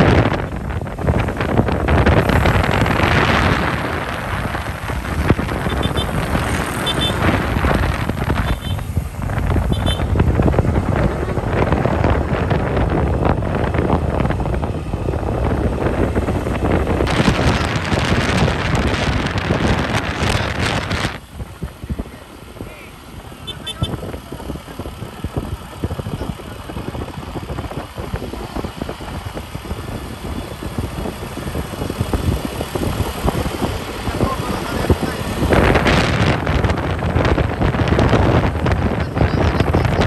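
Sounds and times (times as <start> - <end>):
wind buffeting microphone: 0.0 - 40.0.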